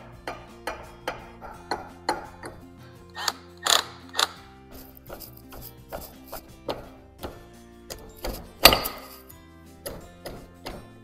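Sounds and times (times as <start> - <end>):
background music: 0.0 - 11.0
metallic clicks of steel bar: 1.6 - 4.4, 7.9 - 10.0.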